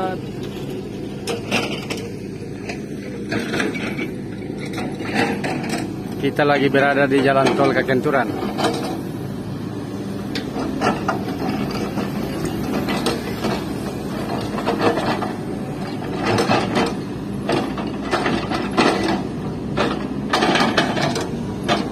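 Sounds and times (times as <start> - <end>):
excavator engine running: 0.0 - 21.9
hydraulic breaker hammering rock: 1.2 - 9.1, 10.3 - 21.9.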